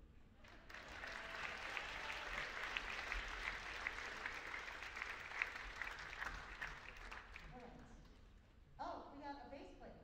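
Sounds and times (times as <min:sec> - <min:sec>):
audience applauding: 0:00.5 - 0:07.6.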